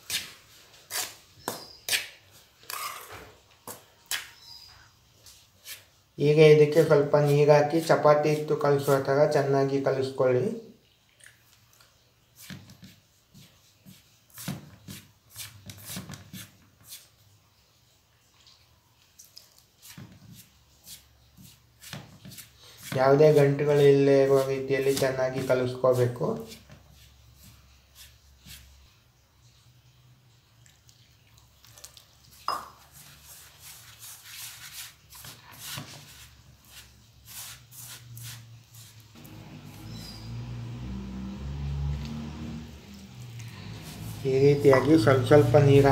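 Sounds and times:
fingers squeezing dough in bowl: 0:05.6 - 0:09.6, 0:19.1 - 0:28.9, 0:30.6 - 0:40.6.

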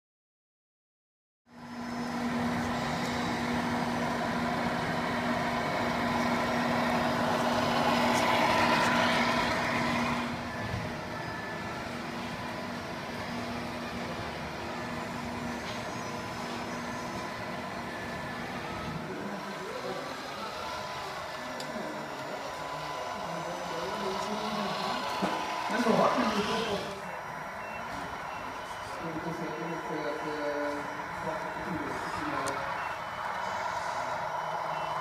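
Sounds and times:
model truck motor humming: 0:01.5 - 0:35.0.

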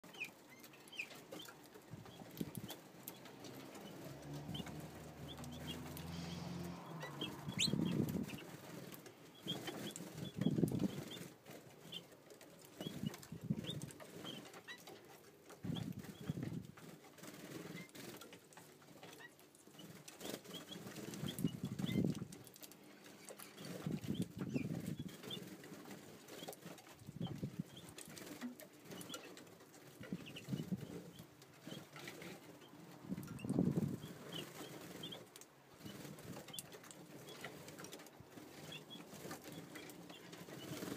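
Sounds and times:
bird wings flapping: 0:19.8 - 0:40.9.

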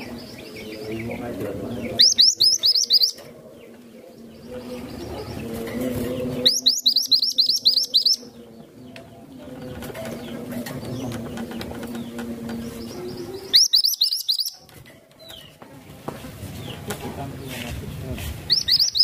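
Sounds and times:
bird singing high chirps: 0:00.0 - 0:05.5, 0:06.2 - 0:09.4, 0:10.0 - 0:15.6, 0:18.5 - 0:19.0.

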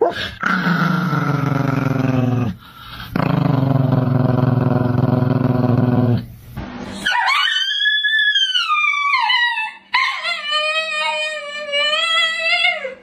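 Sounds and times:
dog howling: 0:07.0 - 0:13.0.

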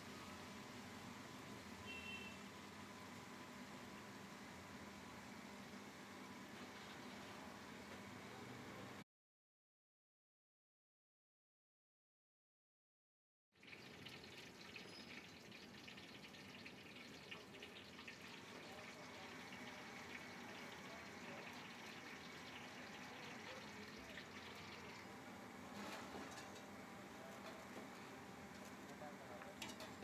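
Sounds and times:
hot oil sizzling in a pot: 0:13.6 - 0:26.8.

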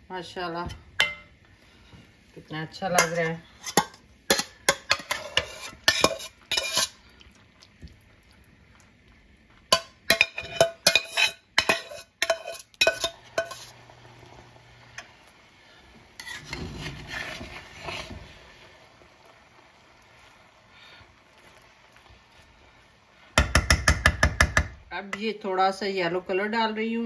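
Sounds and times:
metal spoon clinking on pans: 0:01.0 - 0:01.3, 0:02.9 - 0:07.0, 0:09.7 - 0:13.8
spoon scraping rice: 0:03.0 - 0:07.0, 0:10.1 - 0:13.8, 0:16.2 - 0:18.3.

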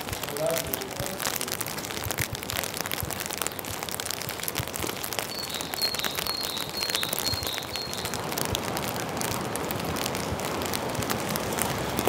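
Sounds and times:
rain on wet street: 0:00.0 - 0:12.0.

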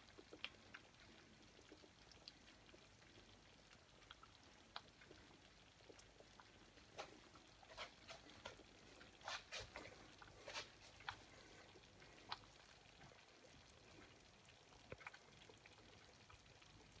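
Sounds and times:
thick soup bubbling: 0:00.0 - 0:17.0.

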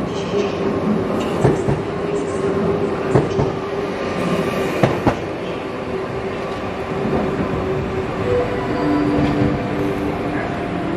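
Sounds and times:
electric train running rumble: 0:00.0 - 0:10.9.

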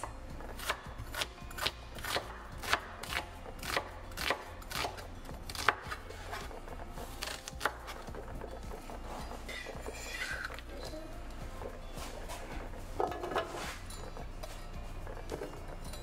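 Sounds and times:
knife slicing onions: 0:00.0 - 0:08.2.

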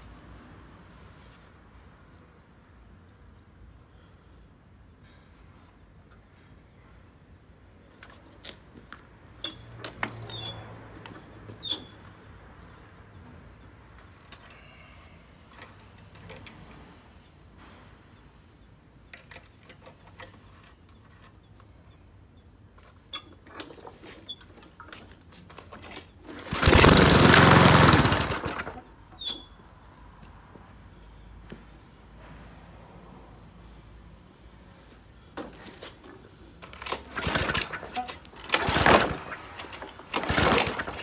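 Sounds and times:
lawn mower engine running: 0:23.5 - 0:28.8, 0:36.6 - 0:41.0.

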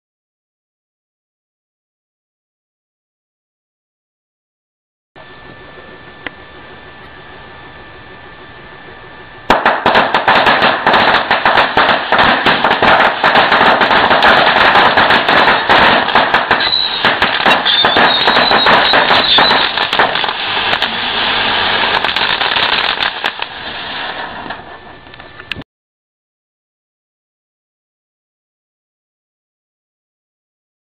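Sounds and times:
rapid chain of firecracker bangs: 0:09.5 - 0:24.7.

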